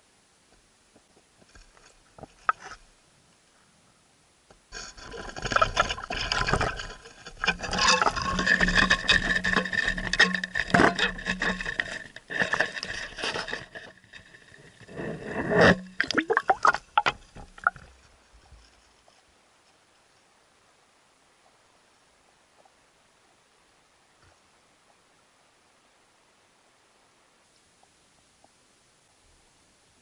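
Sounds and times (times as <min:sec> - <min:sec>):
scraping and clicking handling noise: 0:01.0 - 0:02.9, 0:04.7 - 0:20.2.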